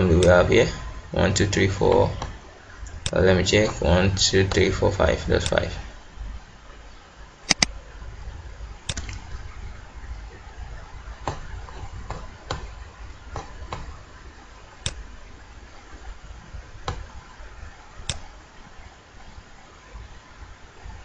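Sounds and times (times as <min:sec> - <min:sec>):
low steady hum: 0:00.0 - 0:21.0
computer mouse clicks: 0:07.5 - 0:07.7, 0:08.9 - 0:09.2.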